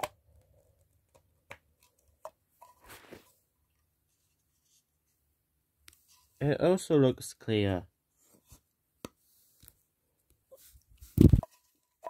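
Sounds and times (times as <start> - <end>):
hands rustling: 10.5 - 11.7.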